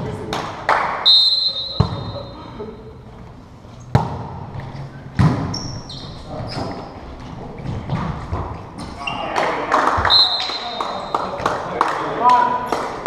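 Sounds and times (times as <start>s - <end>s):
sneakers squeaking on wooden floor: 1.2s - 2.4s, 3.8s - 9.4s, 10.0s - 11.4s
volleyball hit echoing: 1.6s - 2.2s, 3.9s - 4.5s, 5.2s - 5.6s.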